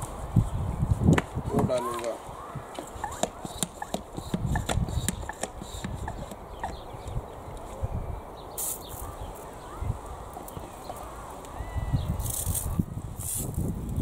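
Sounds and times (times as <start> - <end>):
pressure sprayer clicks and knocks: 3.2 - 6.8
hiss of spray: 8.6 - 9.1.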